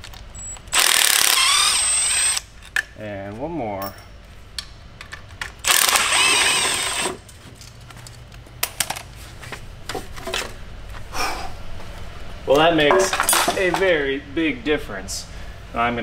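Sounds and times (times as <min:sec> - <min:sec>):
electric ratchet motor whine: 0:00.7 - 0:02.5, 0:05.6 - 0:07.2.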